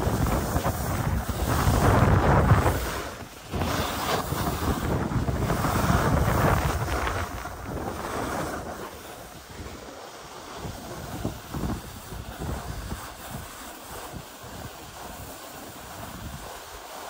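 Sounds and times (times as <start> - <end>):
wind buffeting microphone: 0.0 - 16.7
skis sliding over snow: 0.0 - 17.0.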